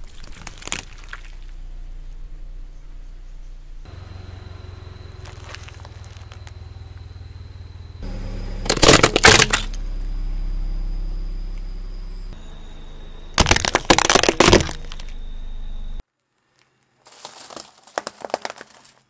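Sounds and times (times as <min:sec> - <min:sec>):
plastic cracking and crunching: 0:00.0 - 0:01.5, 0:08.7 - 0:09.7, 0:13.4 - 0:15.1, 0:16.6 - 0:19.0
car engine humming: 0:01.0 - 0:16.0
tyre crushing objects: 0:08.6 - 0:09.8, 0:13.4 - 0:15.1, 0:17.1 - 0:19.0.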